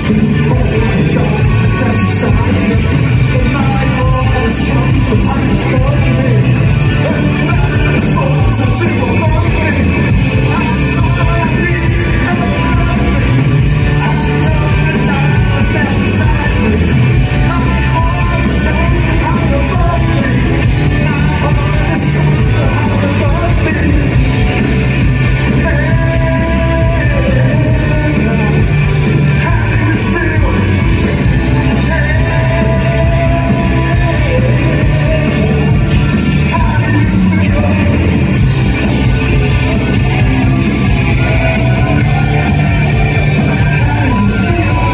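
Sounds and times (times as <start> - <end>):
man singing and shouting: 0.0 - 44.9
rock band playing live: 0.0 - 44.9.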